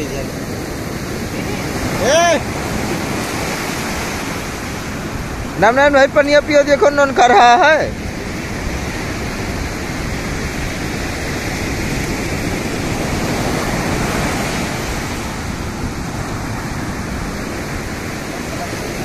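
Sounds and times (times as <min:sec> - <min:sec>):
waves breaking on beach: 0:00.0 - 0:19.0.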